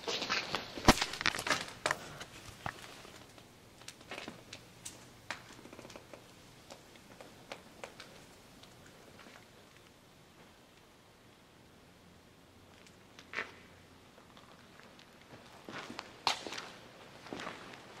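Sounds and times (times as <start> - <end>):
small crunches: 0.0 - 10.5
footsteps: 14.8 - 18.0.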